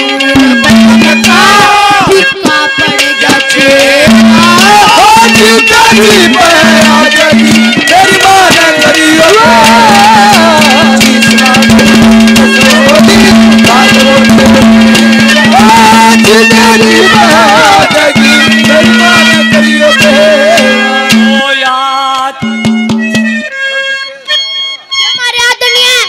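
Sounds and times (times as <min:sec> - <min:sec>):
drums playing busy rhythm: 0:00.0 - 0:23.5, 0:25.2 - 0:26.0
amplified folk music: 0:00.0 - 0:26.0.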